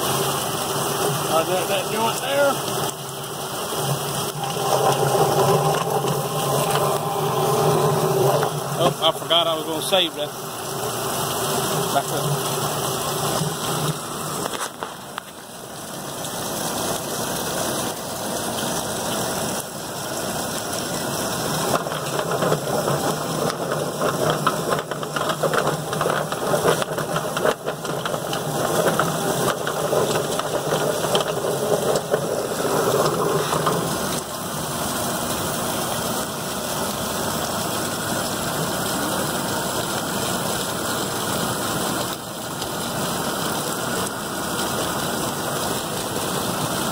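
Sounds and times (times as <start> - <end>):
hose spraying water: 0.0 - 46.9
plucker motor hum: 3.3 - 14.5.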